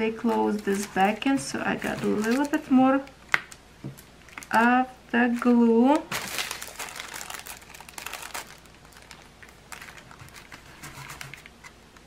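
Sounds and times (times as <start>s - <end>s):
plastic packaging crinkling: 0.1s - 4.8s, 5.4s - 11.7s.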